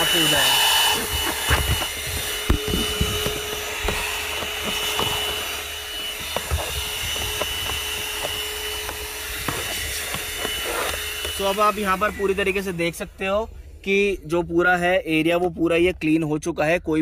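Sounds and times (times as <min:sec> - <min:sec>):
handheld vacuum cleaner whine: 0:00.0 - 0:13.4
nozzle knocking on plastic: 0:01.5 - 0:05.5.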